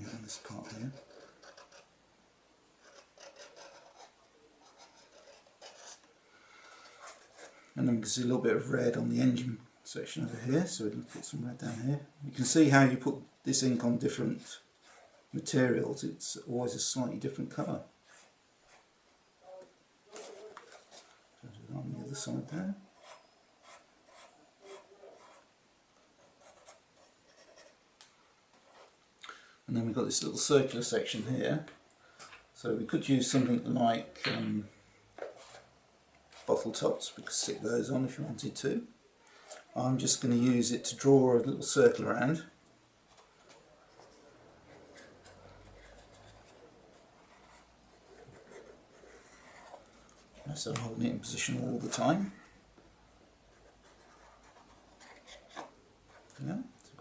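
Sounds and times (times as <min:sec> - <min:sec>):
marker pen scratching on cardboard: 0:00.4 - 0:01.9, 0:02.8 - 0:06.1, 0:23.0 - 0:25.5, 0:43.1 - 0:49.9.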